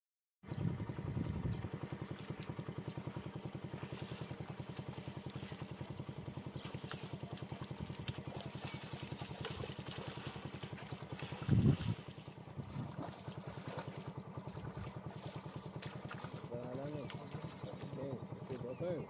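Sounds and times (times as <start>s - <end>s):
small engine idling: 0.4s - 19.0s.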